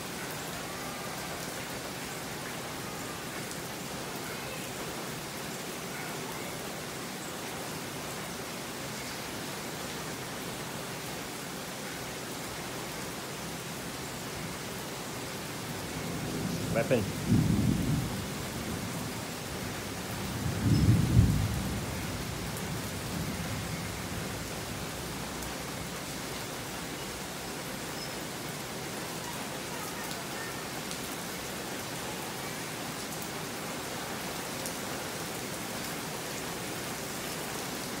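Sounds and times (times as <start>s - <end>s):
steady rain hissing: 0.0s - 38.0s.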